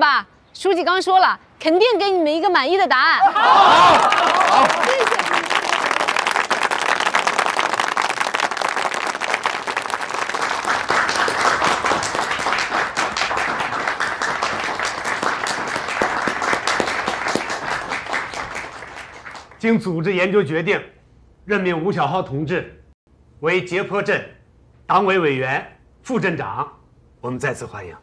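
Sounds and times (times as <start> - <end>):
group of people clapping: 3.4 - 19.7.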